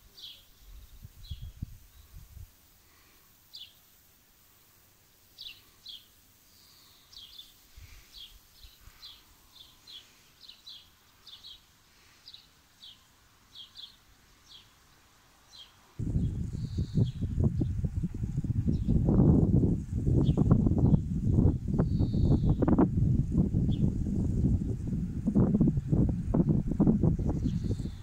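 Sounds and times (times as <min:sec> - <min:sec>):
small birds chirping: 0:00.0 - 0:25.1, 0:25.7 - 0:28.0
low rumbles: 0:16.0 - 0:21.6.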